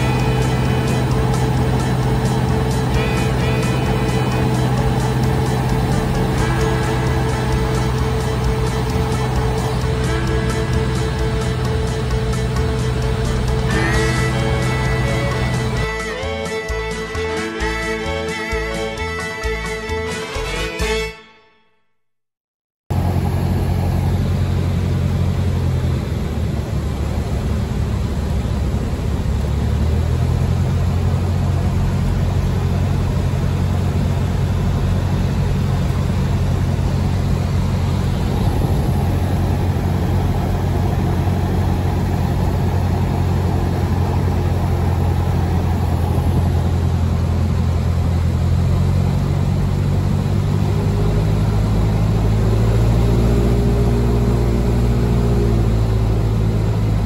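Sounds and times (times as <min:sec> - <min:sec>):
aircraft engine droning: 0:00.0 - 0:19.7, 0:22.9 - 0:57.0
rush of air: 0:37.2 - 0:47.6.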